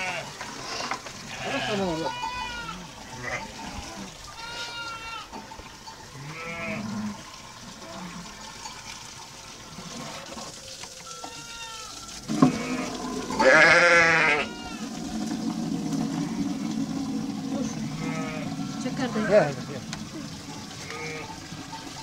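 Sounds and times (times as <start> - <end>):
sheep bleating: 0.0 - 0.3, 1.3 - 5.3, 6.2 - 7.1, 11.0 - 14.9, 17.9 - 19.7, 20.8 - 21.4.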